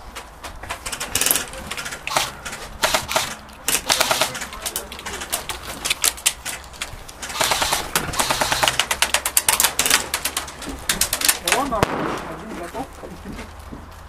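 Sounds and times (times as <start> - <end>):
airsoft guns firing: 0.9 - 6.4, 7.2 - 12.7.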